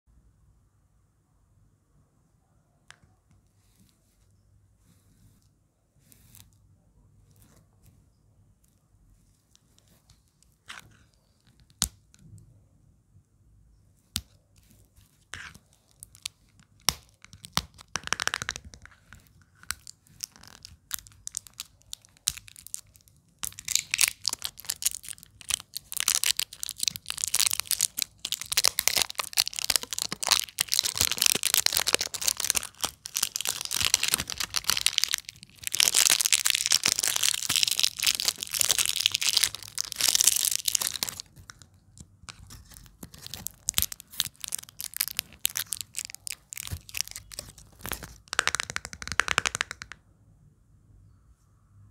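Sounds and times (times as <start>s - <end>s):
plastic wrap crinkling and tearing: 15.4s - 18.6s, 19.6s - 49.8s.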